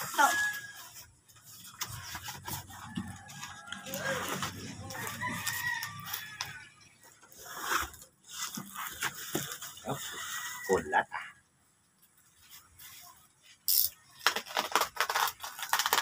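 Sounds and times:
rooster crowing: 0:00.0 - 0:00.9, 0:02.8 - 0:06.8
bubble wrap handled: 0:00.0 - 0:06.6, 0:12.4 - 0:16.0.

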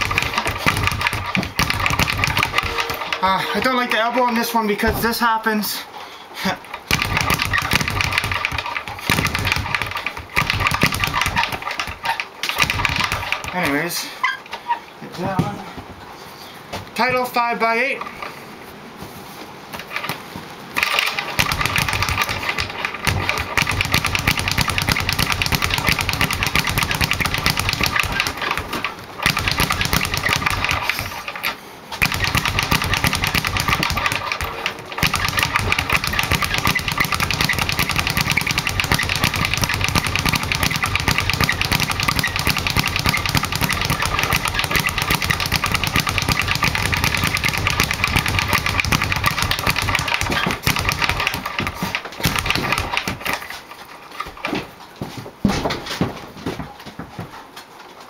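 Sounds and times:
speed bag rattling: 0:00.0 - 0:05.4, 0:06.4 - 0:14.1, 0:20.8 - 0:54.5.

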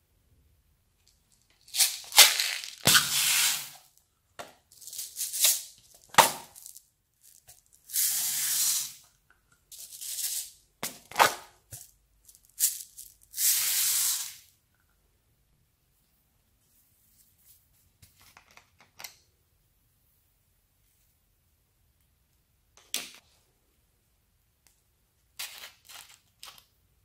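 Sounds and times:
plastic beads rattling and pouring: 0:01.3 - 0:03.8, 0:04.7 - 0:09.0, 0:09.7 - 0:10.6, 0:11.7 - 0:14.4.

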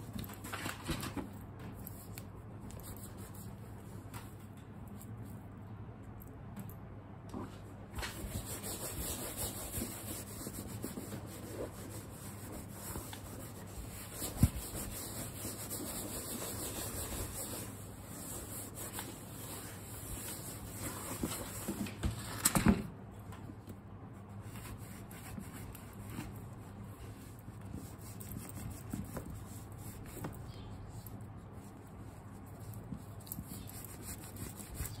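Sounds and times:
wipe rubbing on leather: 0:08.1 - 0:21.2.

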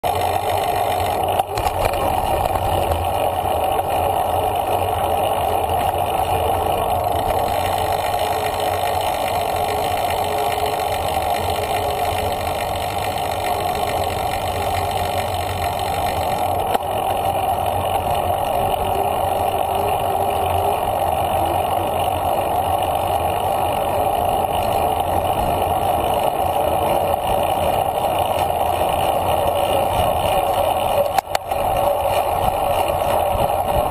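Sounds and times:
bicycle tyre hum on pavement: 0:00.0 - 0:33.9
wind on microphone: 0:29.8 - 0:33.9.

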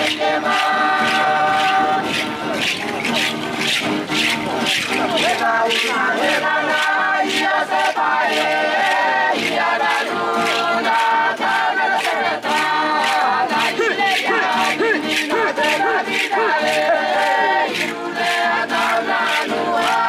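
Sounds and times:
group singing a chant: 0:00.0 - 0:20.0.

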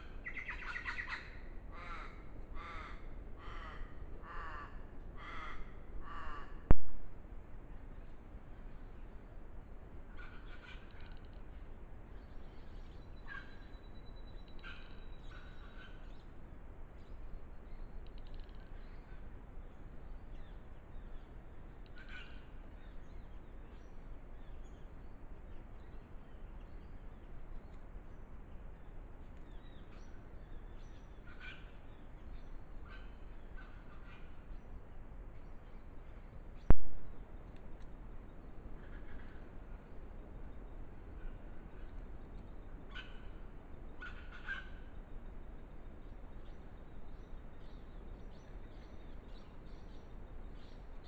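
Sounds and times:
faint short bird calls: 0:00.0 - 0:07.1, 0:10.1 - 0:11.6, 0:21.8 - 0:22.7, 0:29.4 - 0:34.7, 0:38.8 - 0:39.9, 0:41.1 - 0:45.0
microphone hiss: 0:32.6 - 0:42.2.

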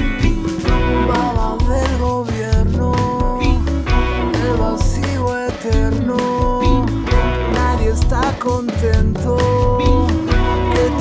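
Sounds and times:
folk-rock band playing: 0:00.0 - 0:11.0.

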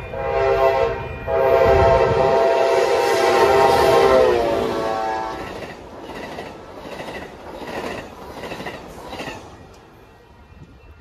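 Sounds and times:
train cars rolling past: 0:00.0 - 0:11.0.

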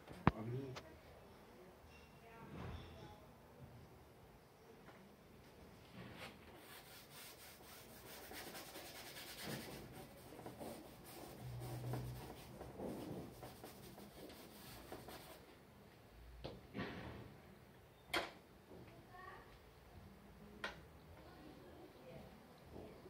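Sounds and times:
brush scrubbing on canvas: 0:06.5 - 0:15.4.

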